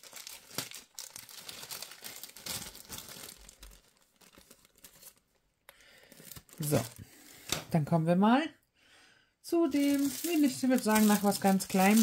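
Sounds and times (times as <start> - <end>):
plastic bag crinkling: 0.0 - 5.4, 6.0 - 7.5, 9.7 - 12.0.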